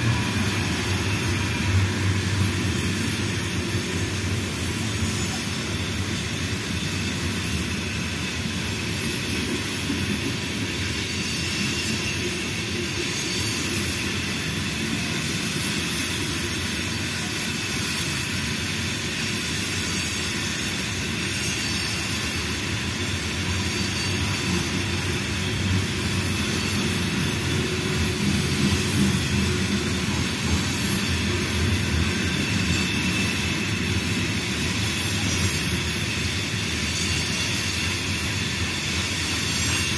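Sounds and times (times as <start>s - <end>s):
freight train rumbling past: 0.0s - 39.9s
thin high whine: 19.3s - 39.9s.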